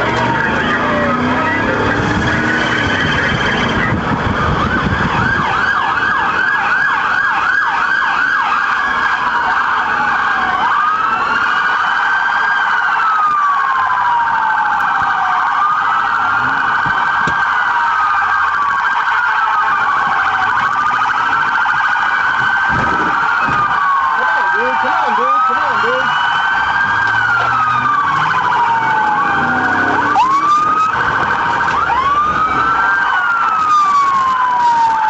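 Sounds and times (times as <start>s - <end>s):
car engine and road noise: 0.0s - 35.0s
police car sirens wailing: 0.0s - 35.0s.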